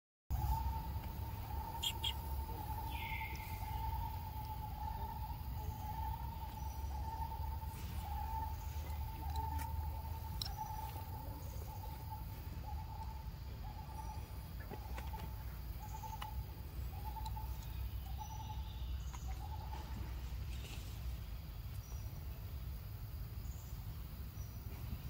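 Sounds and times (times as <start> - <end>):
hooting call: 0.3 - 18.7
steady low rumble: 0.3 - 25.0.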